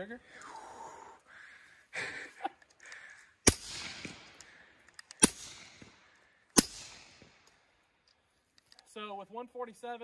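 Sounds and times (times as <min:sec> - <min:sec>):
echo rolling back from terrain: 0:02.6 - 0:08.2
suppressed pistol shots: 0:03.4 - 0:07.6.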